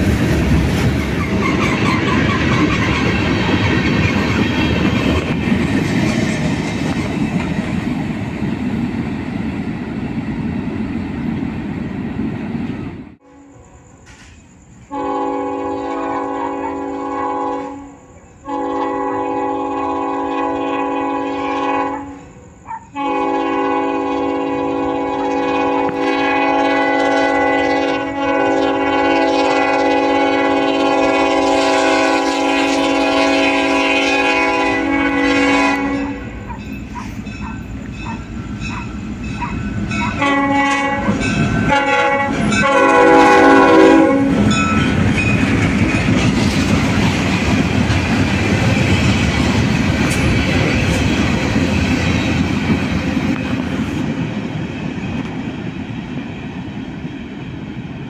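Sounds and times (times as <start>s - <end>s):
train rumbling past: 0.0s - 58.0s
locomotive air horn: 13.2s - 14.0s, 14.9s - 22.4s, 23.0s - 36.5s, 39.9s - 44.6s.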